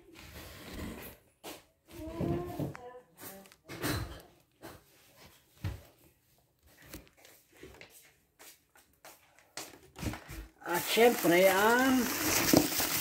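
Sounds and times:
plastic bags rustling: 0:09.7 - 0:13.0
items bumping in cardboard box: 0:10.0 - 0:13.0.

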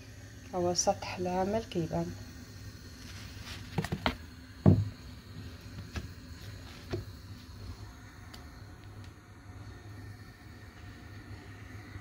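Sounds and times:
low steady hum: 0:00.0 - 0:12.0
heavy thump: 0:04.6 - 0:04.9.

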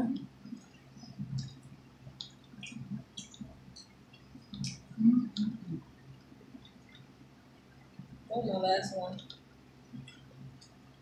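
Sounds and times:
low mouth sounds: 0:04.6 - 0:05.9.

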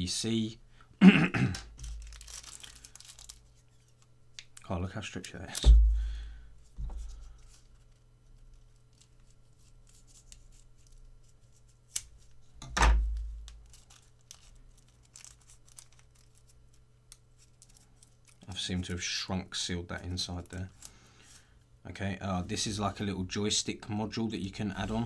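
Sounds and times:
plastic wrap crinkling: 0:01.7 - 0:05.8, 0:13.0 - 0:18.7
plastic tearing: 0:01.8 - 0:05.7, 0:13.1 - 0:18.6
dull thump: 0:05.6 - 0:07.1.

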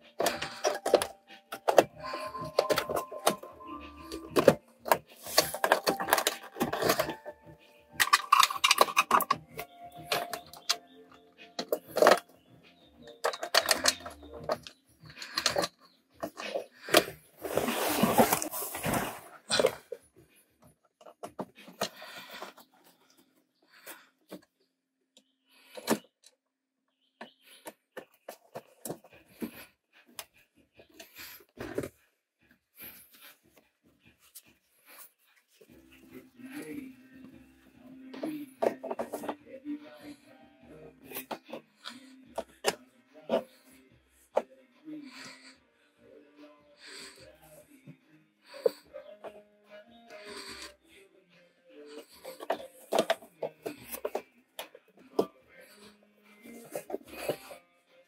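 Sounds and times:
plastic trim parts clicking and rattling: 0:04.2 - 0:07.3, 0:08.0 - 0:10.8, 0:13.2 - 0:17.1.

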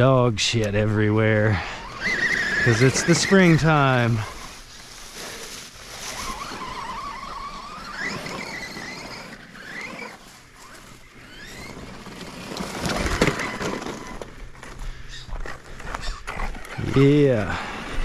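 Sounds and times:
electric motor whining: 0:00.6 - 0:18.0
crunching and scuffing: 0:04.0 - 0:07.0.

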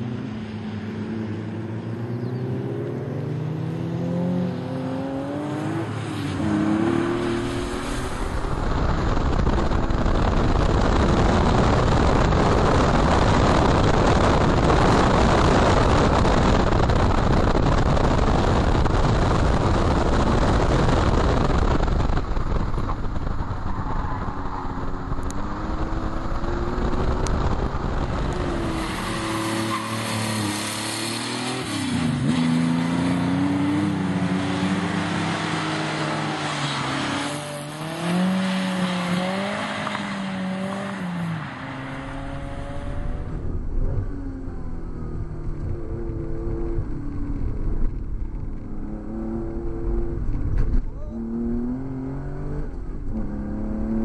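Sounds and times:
car engine revving: 0:02.0 - 0:54.0
tyre spray and wind rush: 0:05.9 - 0:43.8.

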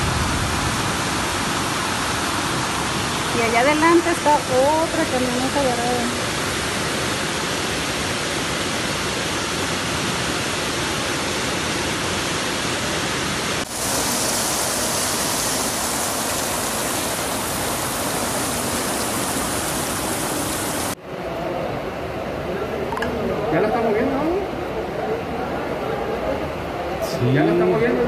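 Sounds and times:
floodwater rushing: 0:00.0 - 0:21.0
heavy rain: 0:00.0 - 0:28.0.

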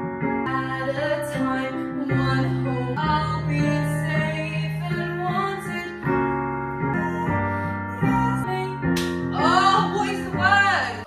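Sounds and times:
piano chords: 0:00.0 - 0:11.0
young woman singing: 0:00.5 - 0:11.0.

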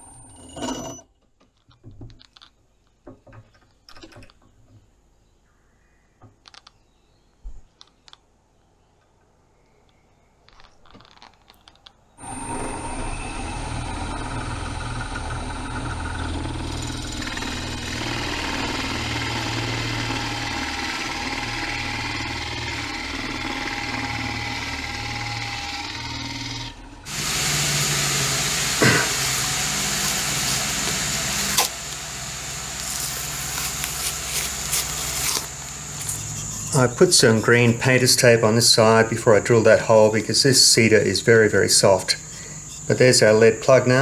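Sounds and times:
drill press boring into wood: 0:12.2 - 0:44.0
loud steady machine noise: 0:12.2 - 0:44.0.

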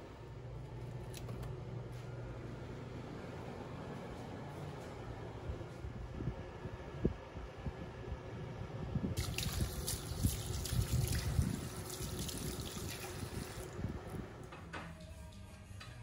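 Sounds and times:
water running: 0:09.2 - 0:13.8.

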